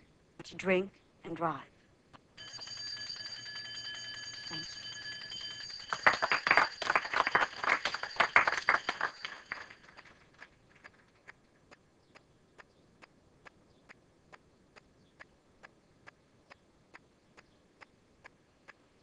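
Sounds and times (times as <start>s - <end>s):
electric school bell ringing: 2.4s - 10.0s
class applauding: 4.5s - 11.4s.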